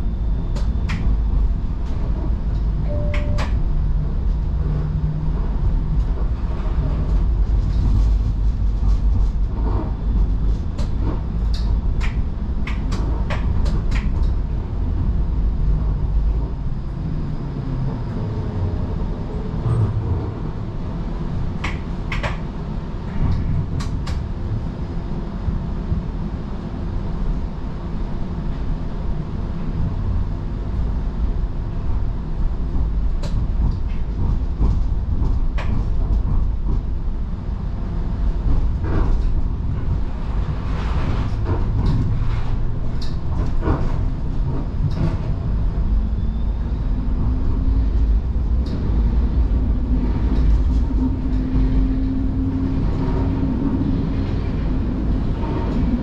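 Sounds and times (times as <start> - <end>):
low steady hum: 0.0 - 4.6
streetcar rumbling on rails: 0.0 - 56.0.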